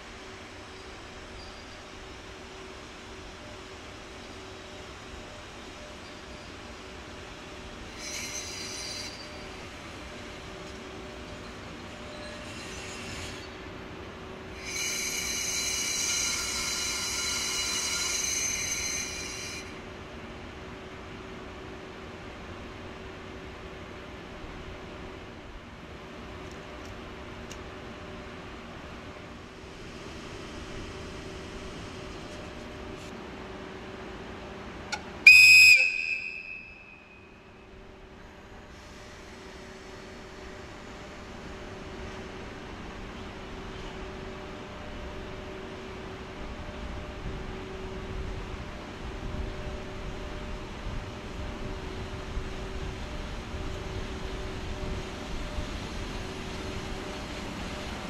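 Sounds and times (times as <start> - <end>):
train brakes squealing: 0.0 - 4.5, 5.2 - 13.8, 14.5 - 19.8, 34.9 - 37.7, 38.4 - 42.3
locomotive whistle blast: 35.2 - 37.4.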